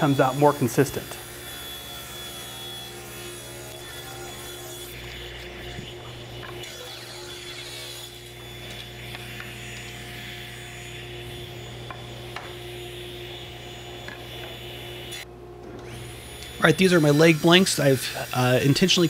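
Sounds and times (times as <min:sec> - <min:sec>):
table saw cutting wood: 0:00.0 - 0:19.0.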